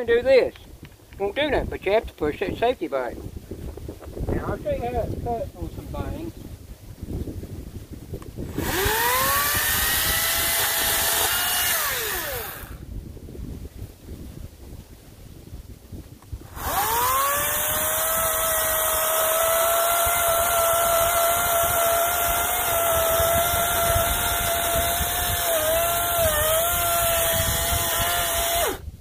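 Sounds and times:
chainsaw motor whining: 0:08.4 - 0:12.8, 0:16.4 - 0:29.0.

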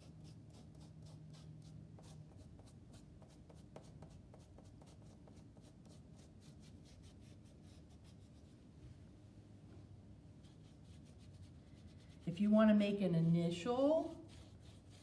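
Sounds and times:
foam brush dabbing paint: 0:10.4 - 0:15.0.

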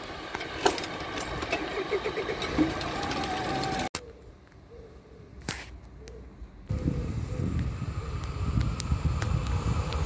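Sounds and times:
train passing with clatter: 0:00.0 - 0:03.9.

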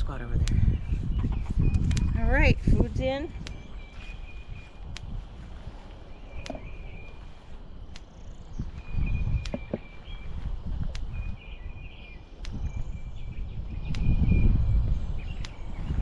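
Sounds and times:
wind rumbling on microphone: 0:00.0 - 0:16.0
electric fence energizer ticking: 0:07.8 - 0:08.5, 0:13.8 - 0:14.6.

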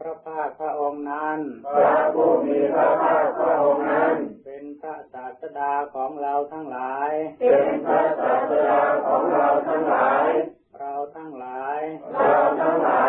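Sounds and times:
congregation chanting in unison: 0:01.5 - 0:04.5, 0:07.2 - 0:10.6, 0:11.8 - 0:13.0.

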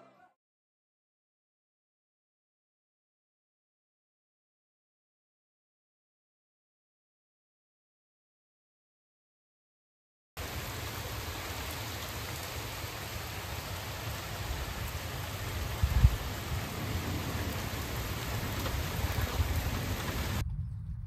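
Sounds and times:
heavy rain pouring: 0:10.4 - 0:20.4
low thunder rumble: 0:10.4 - 0:21.0.

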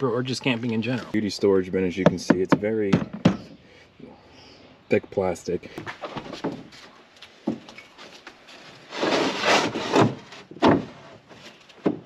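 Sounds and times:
plastic bin scraping: 0:08.5 - 0:12.0.

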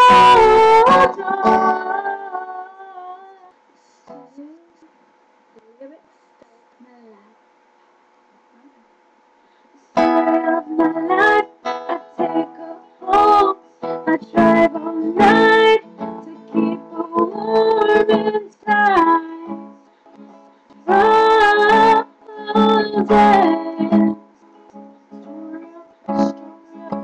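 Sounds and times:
woman singing: 0:00.0 - 0:03.6, 0:10.0 - 0:19.7, 0:20.8 - 0:24.3, 0:25.2 - 0:27.0
acoustic guitar: 0:00.0 - 0:04.9, 0:09.4 - 0:27.0.

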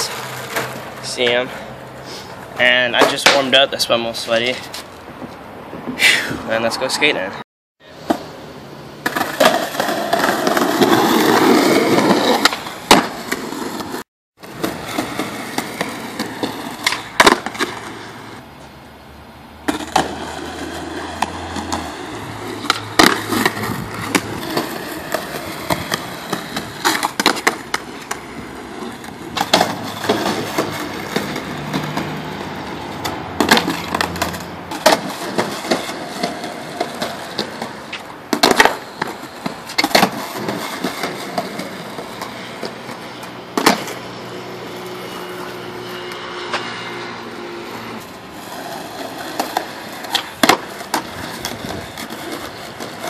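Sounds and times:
skateboard deck clacking on pavement: 0:00.0 - 0:01.1, 0:02.9 - 0:03.6, 0:09.0 - 0:18.2, 0:19.6 - 0:44.0, 0:48.4 - 0:53.0
skateboard wheels rolling on asphalt: 0:00.0 - 0:53.0.

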